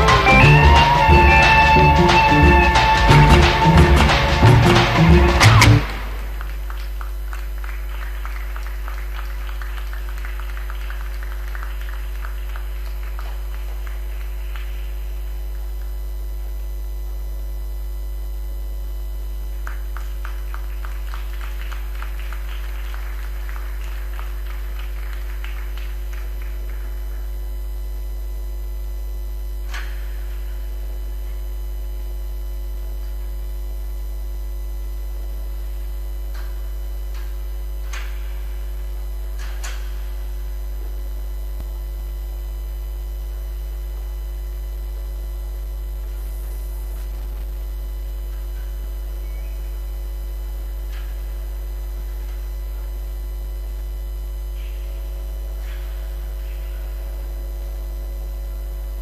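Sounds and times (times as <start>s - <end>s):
electrical mains hum: 0.0s - 59.0s.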